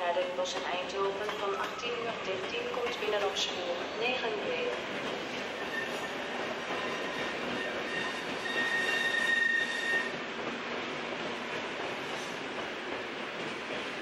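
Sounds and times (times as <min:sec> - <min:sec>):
train rumbling over tracks: 0:00.0 - 0:14.0
train wheels squealing: 0:01.3 - 0:02.1, 0:05.3 - 0:10.2.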